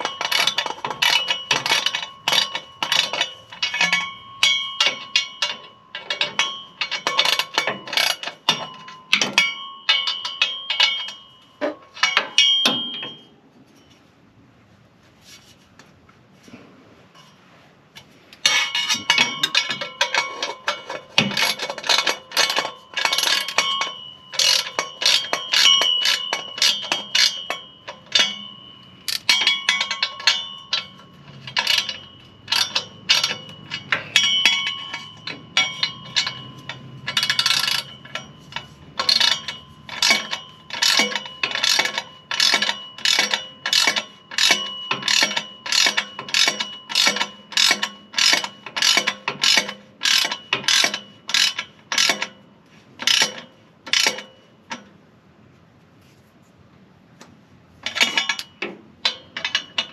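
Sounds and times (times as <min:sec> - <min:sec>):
ratchet wrench clicking: 0:00.0 - 0:08.6, 0:18.4 - 0:28.4, 0:29.1 - 0:52.3, 0:53.0 - 0:54.2
metallic ringing: 0:00.0 - 0:14.1, 0:18.4 - 0:55.0, 0:57.8 - 0:59.9.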